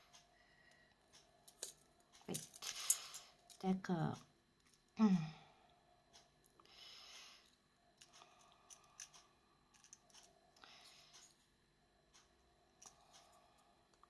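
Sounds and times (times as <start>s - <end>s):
small clicks of needles: 7.4s - 11.4s, 12.1s - 14.0s.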